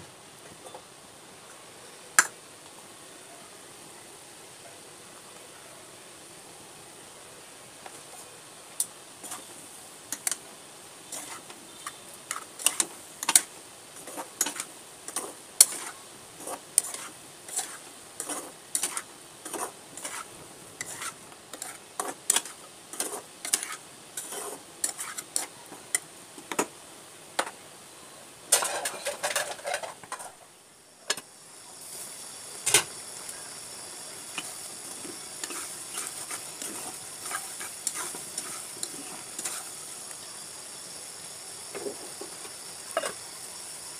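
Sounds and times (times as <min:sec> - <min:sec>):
vegetables sizzling: 0:07.9 - 0:43.9
metal spatula scraping frying pan: 0:11.1 - 0:25.5, 0:28.6 - 0:30.4, 0:35.4 - 0:39.7.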